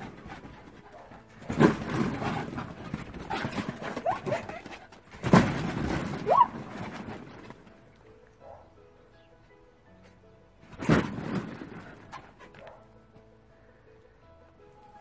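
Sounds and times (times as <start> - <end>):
rustling and knocking: 0.0 - 8.0, 10.6 - 12.8.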